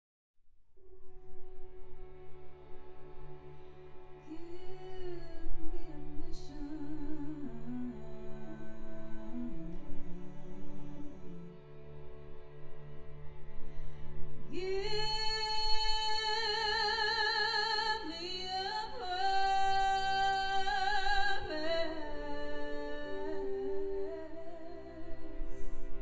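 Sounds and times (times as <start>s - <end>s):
woman singing with vibrato: 14.5s - 25.7s.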